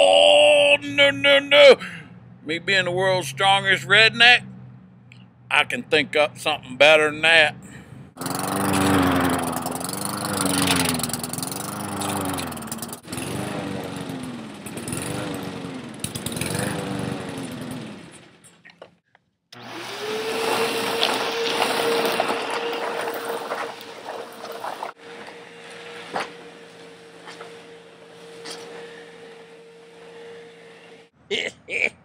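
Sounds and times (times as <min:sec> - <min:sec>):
small engine revving: 0:07.6 - 0:18.7, 0:19.6 - 0:31.2.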